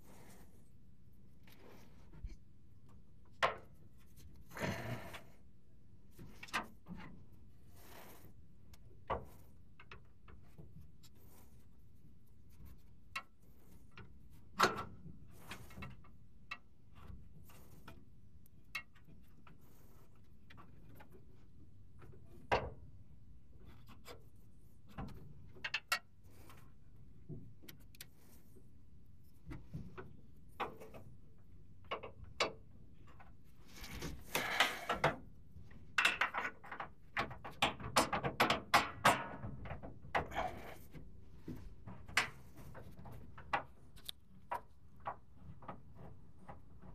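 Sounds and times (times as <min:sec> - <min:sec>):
tools clicking and knocking: 0:35.9 - 0:40.7.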